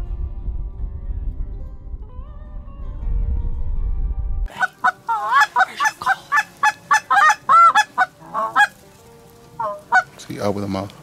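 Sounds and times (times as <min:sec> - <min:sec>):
low rumble: 0:00.0 - 0:04.6
goose call honks: 0:04.6 - 0:08.8, 0:09.6 - 0:10.1.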